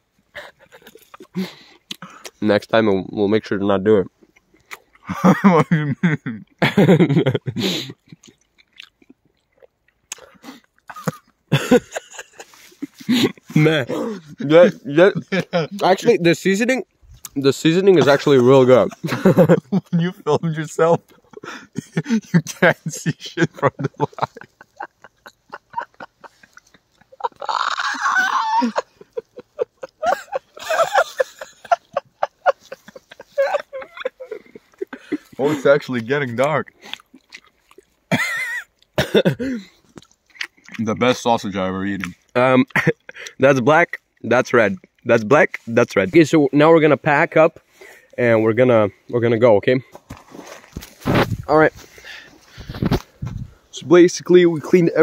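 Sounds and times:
wet chewing and mouth clicks: 0.6 - 2.4, 4.2 - 5.1, 7.9 - 11.5, 16.8 - 17.4, 24.3 - 27.9, 36.3 - 39.0, 39.7 - 41.0, 44.0 - 45.2
young man laughing: 5.1 - 8.1, 10.9 - 16.2, 17.8 - 35.8, 38.1 - 39.7
person speaking: 12.8 - 36.7.

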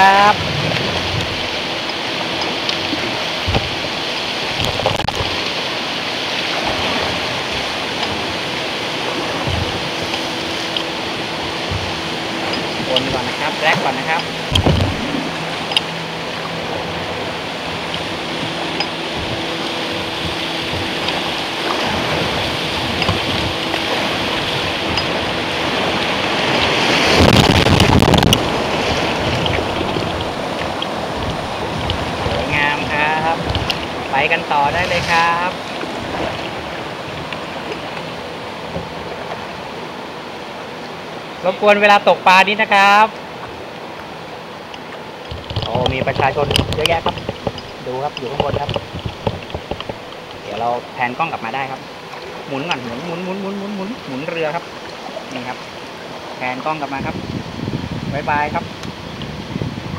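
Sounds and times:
river water rushing over weir: 0.0 - 59.9
low knocks: 14.1 - 15.1
rough rumbling burst: 21.8 - 30.4.

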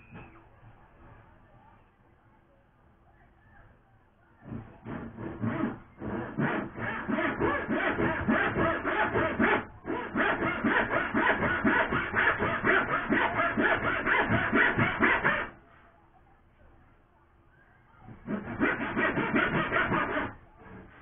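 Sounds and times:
hand saw cutting wood: 4.4 - 15.6, 18.1 - 21.0.

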